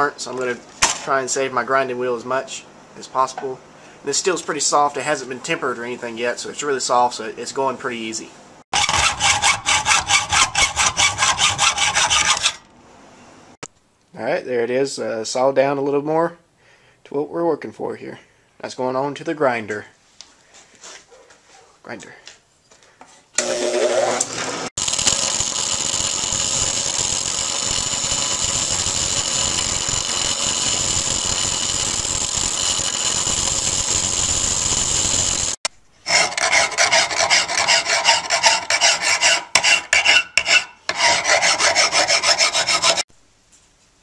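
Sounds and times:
bench grinder grinding steel: 0:08.7 - 0:12.7, 0:23.4 - 0:43.1.

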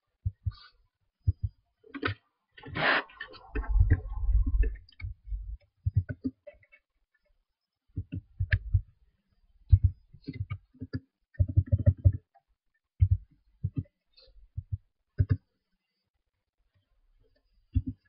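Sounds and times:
low rough rumbling: 0:03.4 - 0:05.6.

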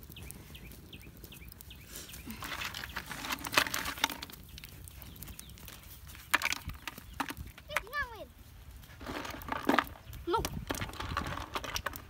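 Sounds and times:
bird chirping: 0:00.0 - 0:03.2, 0:04.3 - 0:07.5.

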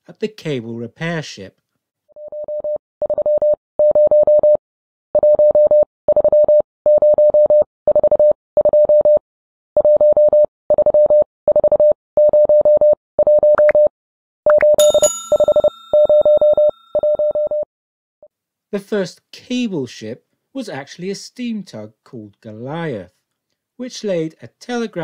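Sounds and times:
morse code beeps: 0:02.2 - 0:04.6, 0:14.5 - 0:17.6.

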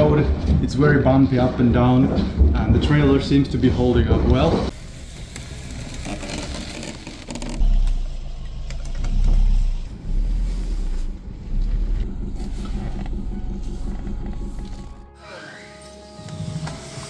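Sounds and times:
vehicle towing trailer rumbling: 0:04.7 - 0:15.2.

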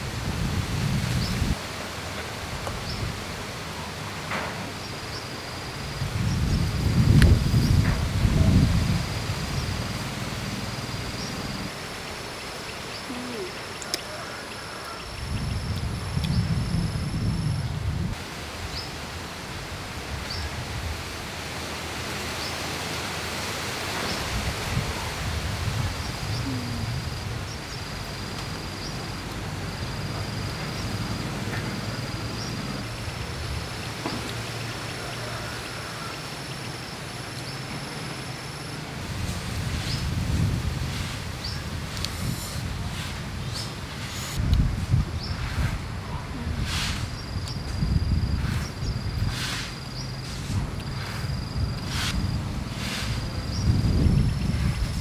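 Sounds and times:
insects trilling: 0:25.9 - 0:40.6.

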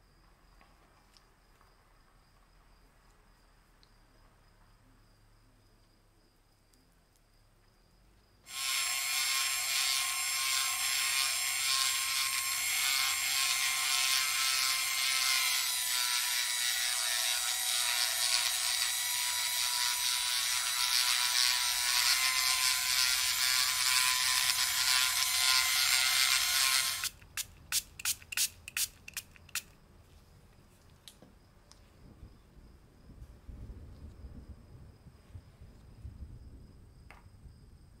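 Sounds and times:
rotary tool high whine: 0:08.5 - 0:27.2
sharp clicks: 0:27.0 - 0:29.7.

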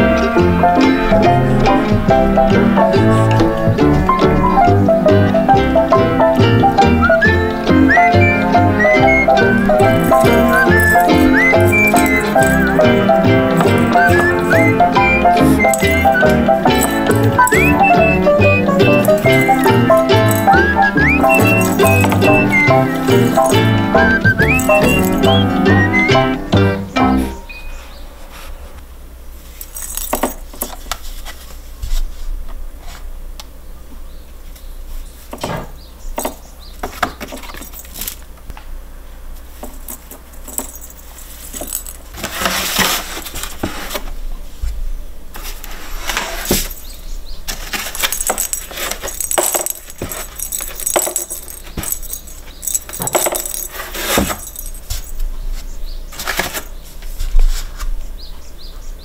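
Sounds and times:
toy balls clicking and rattling: 0:06.7 - 0:25.4, 0:29.6 - 0:31.0, 0:37.2 - 0:38.2, 0:39.6 - 0:42.1, 0:47.7 - 0:55.2
claws scraping cardboard: 0:42.2 - 0:44.1.

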